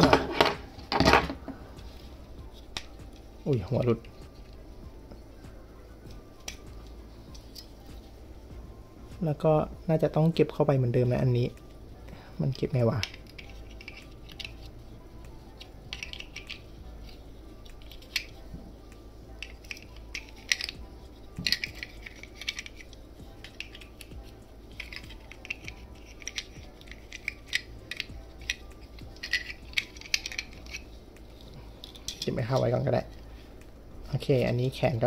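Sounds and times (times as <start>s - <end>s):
plastic toy parts clicking: 13.0s - 14.7s, 15.6s - 18.4s, 19.4s - 20.8s, 21.4s - 24.1s, 24.7s - 32.3s.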